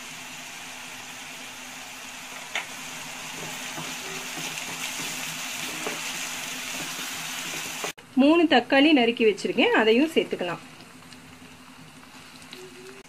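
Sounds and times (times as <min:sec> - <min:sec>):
food sizzling in oil: 0:00.0 - 0:08.0, 0:08.8 - 0:13.0
spatula stirring in pan: 0:02.8 - 0:08.0.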